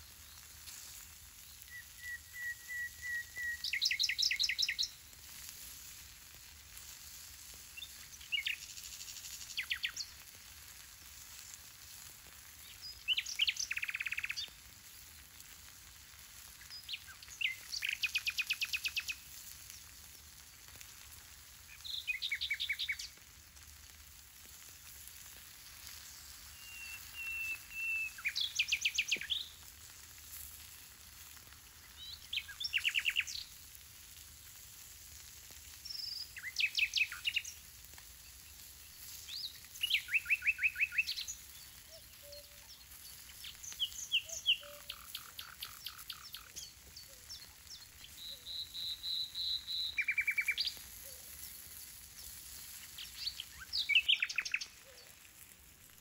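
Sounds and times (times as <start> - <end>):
food sizzling on hot stone: 0.0 - 56.0
songbird trilling: 43.5 - 47.5, 48.1 - 50.7, 53.5 - 54.8.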